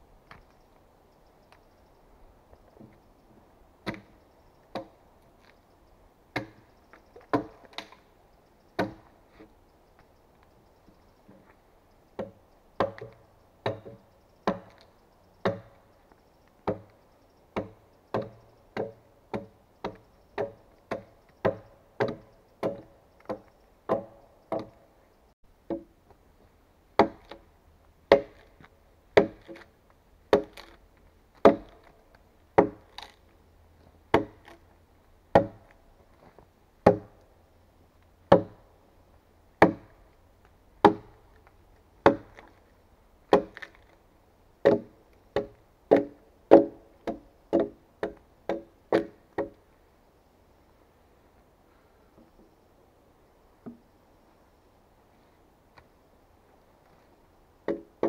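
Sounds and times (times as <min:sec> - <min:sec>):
axe chopping wood: 0:03.8 - 0:04.1, 0:04.7 - 0:05.0, 0:06.3 - 0:08.0, 0:08.8 - 0:09.1, 0:12.2 - 0:15.8, 0:16.6 - 0:17.0, 0:17.6 - 0:24.8, 0:27.0 - 0:27.4, 0:28.1 - 0:28.6, 0:29.2 - 0:29.7, 0:30.3 - 0:30.8, 0:31.4 - 0:31.9, 0:32.6 - 0:33.2, 0:34.1 - 0:34.6, 0:35.3 - 0:35.8, 0:36.8 - 0:37.2, 0:38.3 - 0:38.6, 0:39.6 - 0:40.0, 0:40.8 - 0:41.2, 0:42.0 - 0:42.6, 0:43.3 - 0:43.9, 0:44.6 - 0:49.6, 0:57.6 - 0:58.0.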